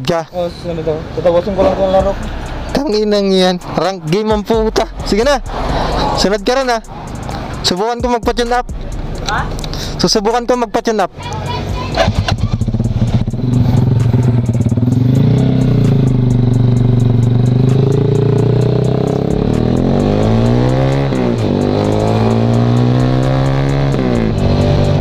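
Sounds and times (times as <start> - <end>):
motorcycle engine accelerating: 1.1 - 7.6, 11.8 - 25.0.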